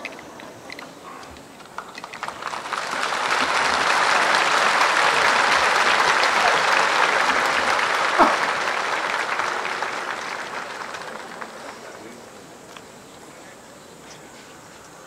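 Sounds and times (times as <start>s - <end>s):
crowd applause: 1.6s - 12.8s.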